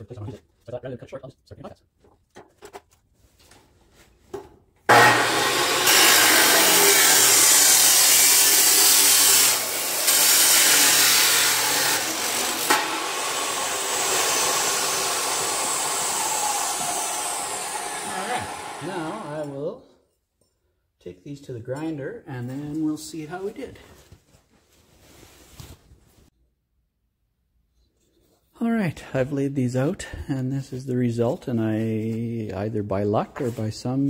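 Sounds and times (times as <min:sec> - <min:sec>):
chop saw grinding metal tubing: 0:04.9 - 0:19.6.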